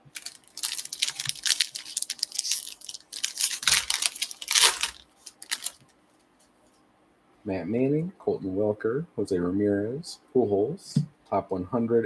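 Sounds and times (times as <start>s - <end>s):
foil wrapper tearing and crinkling: 0.0s - 5.9s.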